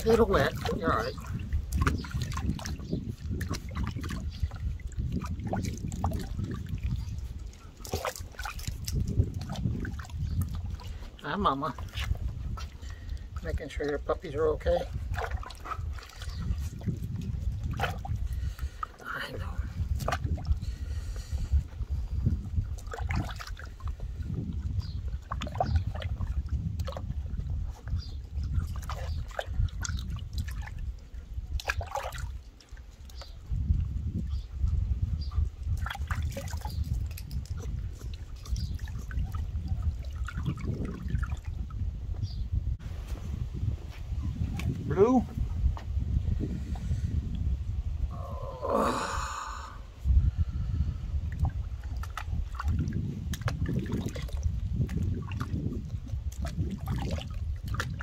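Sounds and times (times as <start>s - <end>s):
water splashing in a plastic tub: 0.0s - 47.5s, 51.0s - 58.0s
steady low rumble: 39.0s - 57.0s.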